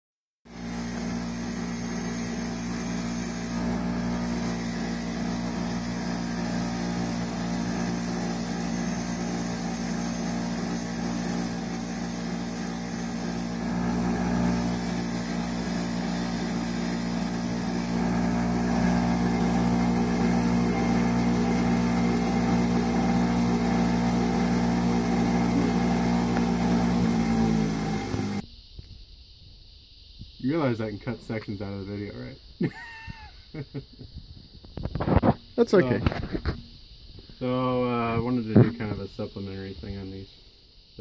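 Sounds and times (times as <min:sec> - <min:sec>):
bench grinder motor hum: 0:00.5 - 0:28.4
wire wheel brushing metal: 0:00.5 - 0:28.4.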